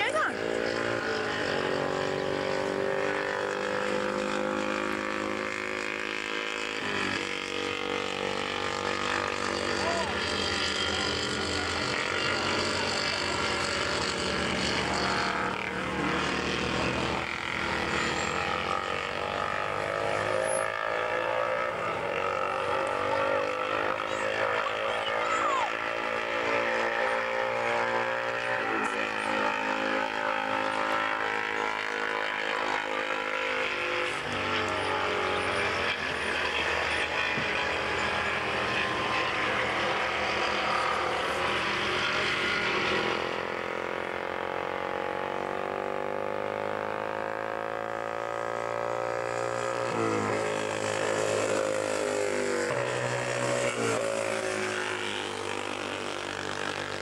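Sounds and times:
racing motorcycle engines: 0:00.0 - 0:57.0.

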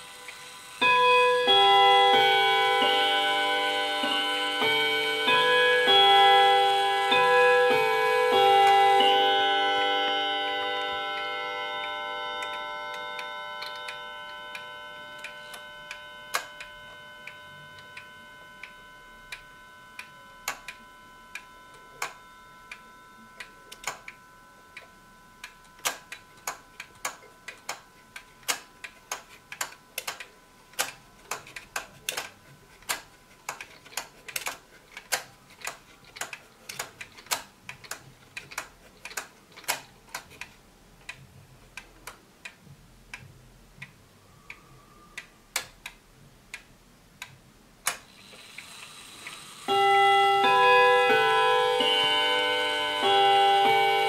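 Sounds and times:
clock chime ringing: 0:00.0 - 0:33.1, 0:48.2 - 0:54.0
clock movement clicks: 0:00.0 - 0:54.0
wall clock ticking: 0:00.0 - 0:54.0.

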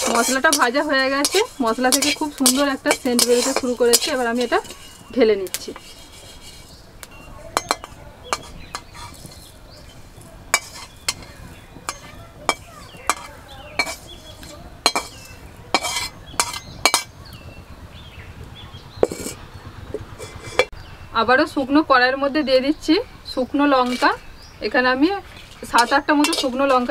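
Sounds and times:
metal spatula scraping a pan: 0:00.0 - 0:06.9, 0:07.5 - 0:17.2, 0:19.0 - 0:19.4, 0:20.2 - 0:20.7, 0:23.8 - 0:24.2, 0:25.2 - 0:26.9
seeds clinking: 0:00.0 - 0:17.2, 0:25.2 - 0:26.9.

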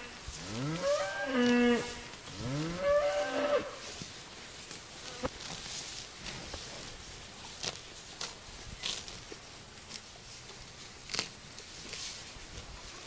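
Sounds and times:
cattle mooing: 0:00.0 - 0:03.8.

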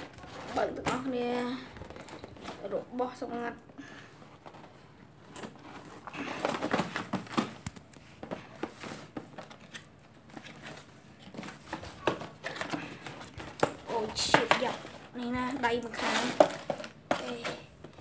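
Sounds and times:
cardboard boxes being handled: 0:04.3 - 0:18.0.

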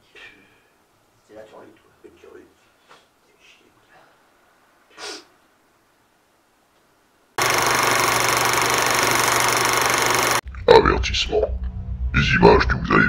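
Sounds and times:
short breathy puff: 0:04.9 - 0:05.3
film projector whirring: 0:07.4 - 0:10.4.

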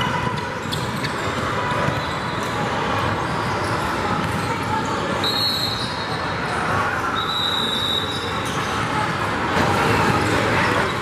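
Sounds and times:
crowd voices: 0:00.0 - 0:11.0.

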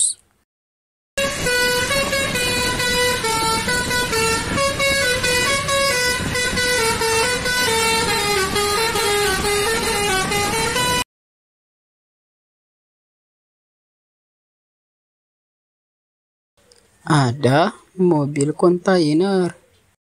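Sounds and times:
musical bus air horn tune: 0:01.2 - 0:11.1.

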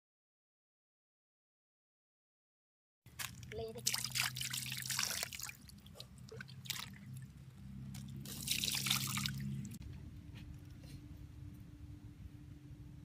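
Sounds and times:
water splashing and trickling: 0:03.1 - 0:09.8.

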